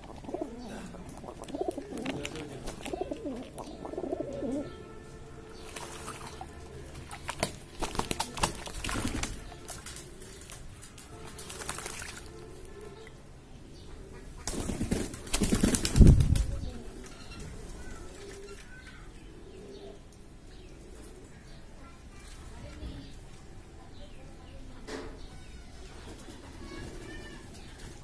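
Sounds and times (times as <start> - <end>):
pigeon splashing in water: 0.0 - 3.8, 5.5 - 12.8, 14.4 - 16.5
pigeon cooing: 0.0 - 4.8, 19.2 - 21.6.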